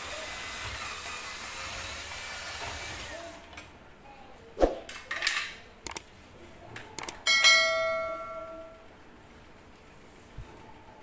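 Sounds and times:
metal piece ringing like a bell: 7.2 - 8.8.

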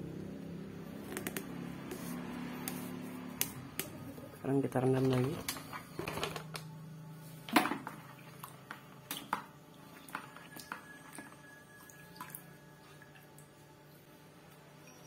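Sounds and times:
water sloshing and dripping: 7.5 - 13.7.

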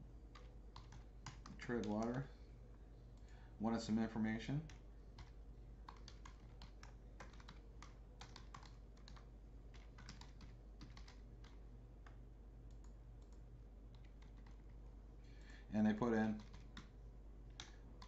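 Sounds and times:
low steady hum: 0.0 - 18.0
keyboard typing: 0.3 - 2.3, 4.6 - 14.7, 16.2 - 16.9, 17.5 - 18.0.

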